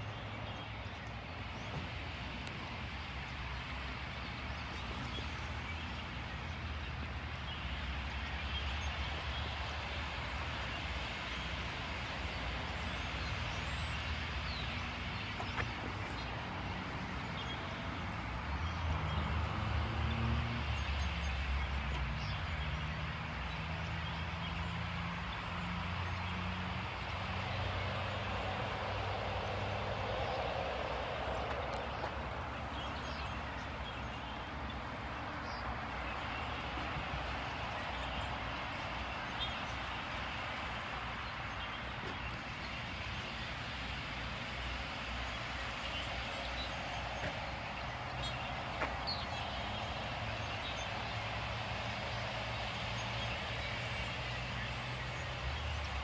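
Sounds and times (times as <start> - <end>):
vehicle engine humming: 11.2 - 56.0
flock of birds chattering: 30.0 - 56.0.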